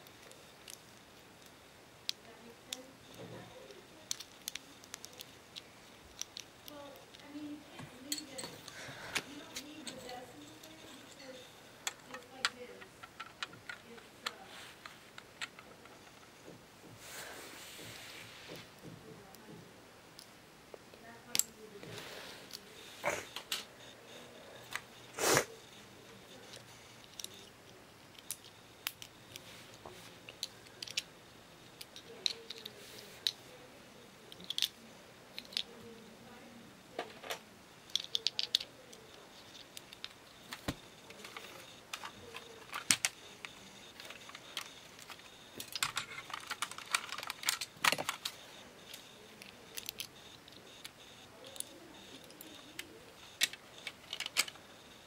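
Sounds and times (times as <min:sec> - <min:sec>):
plastic bricks clicking: 0:04.1 - 0:05.3, 0:34.3 - 0:34.8.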